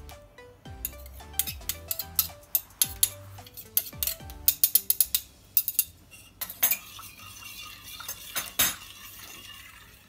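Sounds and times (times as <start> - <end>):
metal spoons clinking on pot: 0.8 - 9.5.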